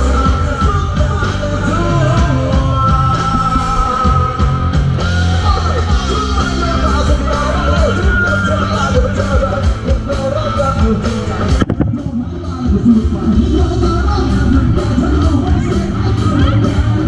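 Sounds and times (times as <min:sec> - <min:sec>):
loud rock music: 0:00.0 - 0:17.0
person singing: 0:00.0 - 0:17.0.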